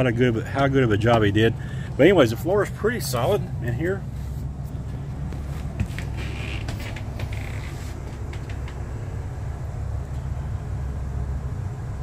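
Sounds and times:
engine idling low rumble: 0:00.0 - 0:12.0
light creaks and taps: 0:05.3 - 0:08.9.

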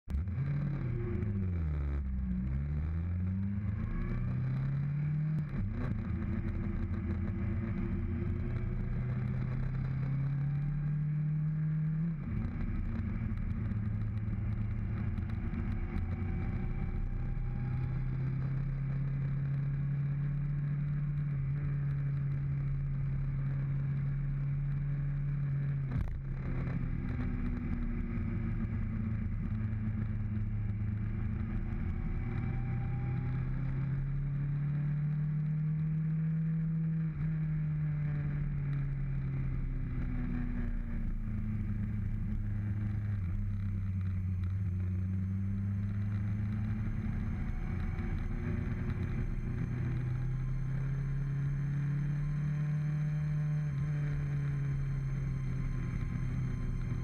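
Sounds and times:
motorcycle engine changing gears: 0:39.4 - 0:57.0.

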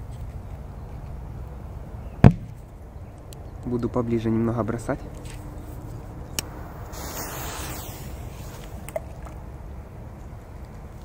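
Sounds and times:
wind rumble on microphone: 0:05.1 - 0:10.6
hiss: 0:06.4 - 0:09.1.

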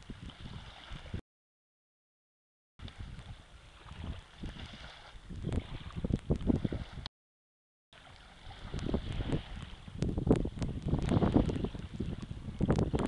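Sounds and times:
wind buffeting microphone: 0:00.0 - 0:01.2, 0:02.8 - 0:07.1, 0:08.0 - 0:13.0.

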